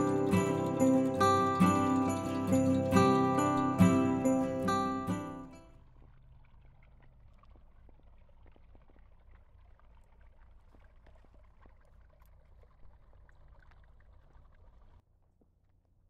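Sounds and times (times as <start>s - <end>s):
jingling christmas music: 0.0s - 5.6s.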